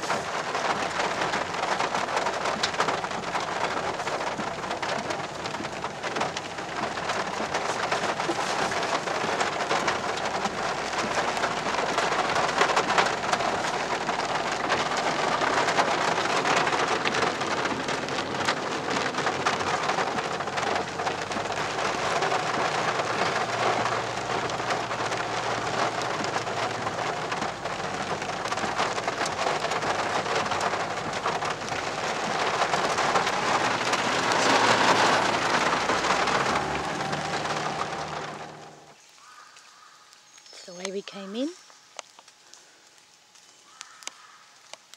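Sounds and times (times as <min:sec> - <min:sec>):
heavy rain on car roof: 0:00.0 - 0:39.5, 0:40.4 - 0:44.9.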